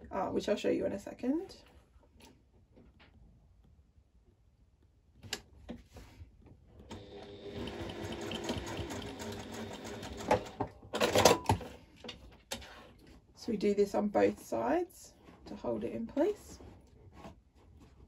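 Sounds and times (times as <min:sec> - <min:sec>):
electric sewing machine running: 0:06.9 - 0:11.4.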